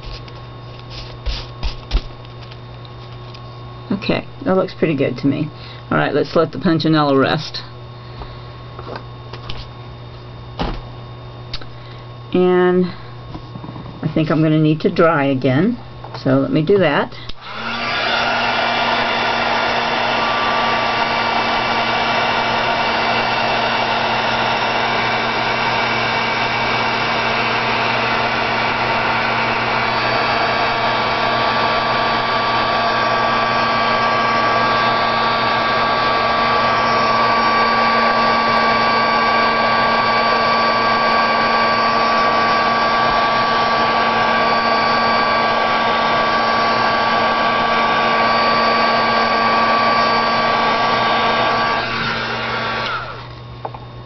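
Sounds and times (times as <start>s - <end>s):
motor whine: 17.2s - 54.0s
craft dryer blowing air: 17.3s - 53.8s.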